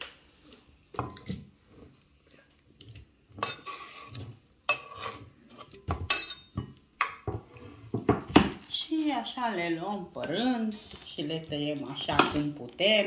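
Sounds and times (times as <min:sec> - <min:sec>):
knife clinking against glass bowl: 0:06.1 - 0:06.7.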